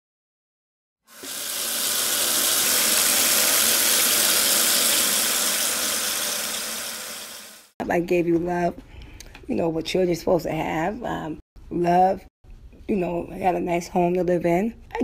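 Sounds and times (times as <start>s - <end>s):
faucet sprayer running water: 1.1s - 7.7s.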